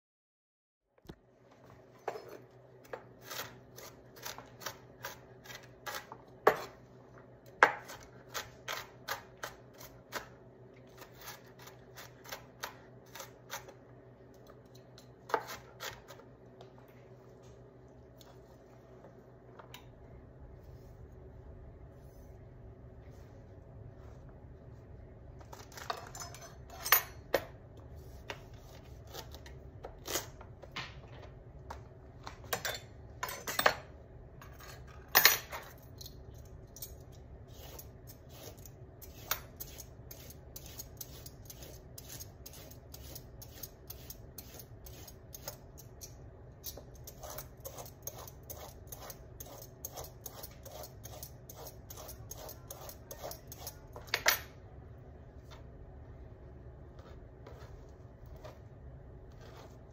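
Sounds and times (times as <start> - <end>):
peeler scraping carrot: 3.2 - 6.8, 7.8 - 13.8, 37.5 - 54.0, 59.3 - 59.9.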